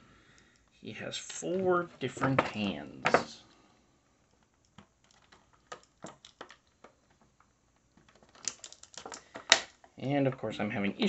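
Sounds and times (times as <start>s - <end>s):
plastic tray clicking and crinkling: 4.3s - 9.9s.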